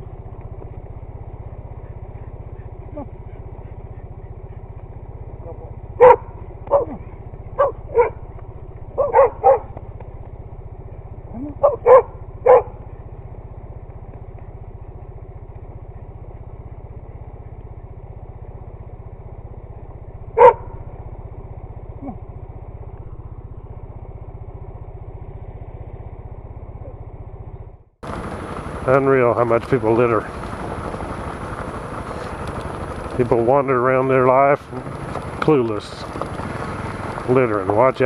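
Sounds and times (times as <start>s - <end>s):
motorcycle engine idling: 0.0s - 38.0s
dog barking: 6.0s - 8.2s, 9.0s - 9.7s, 11.4s - 12.8s, 20.4s - 20.8s.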